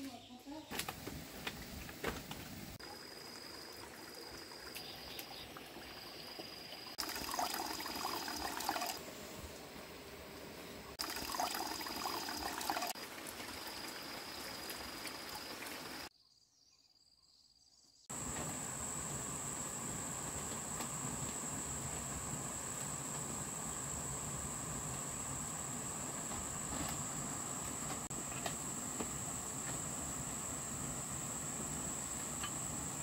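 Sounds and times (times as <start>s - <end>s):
stream water running: 0.7s - 16.1s.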